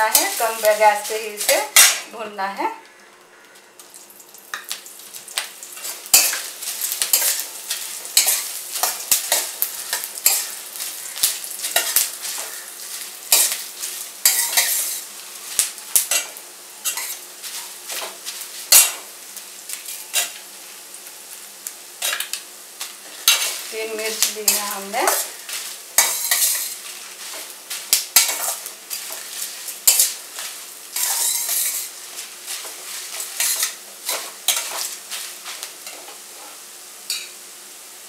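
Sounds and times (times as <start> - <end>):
faint sizzle: 0.0 - 38.0
metal spatula scraping a pan: 5.8 - 15.1, 15.9 - 19.1, 19.9 - 20.4, 23.1 - 37.3.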